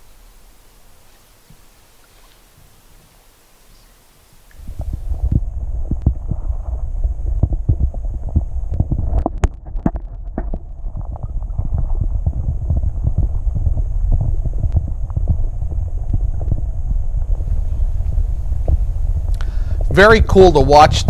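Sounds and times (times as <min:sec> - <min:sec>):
wind buffeting microphone: 0:04.2 - 0:21.0.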